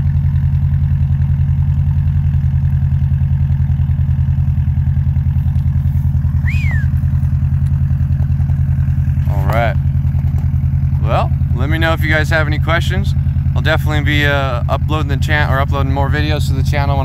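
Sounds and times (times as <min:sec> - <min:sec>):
car exhaust idling burble: 0:00.0 - 0:17.0
high falling chirp: 0:06.2 - 0:07.1.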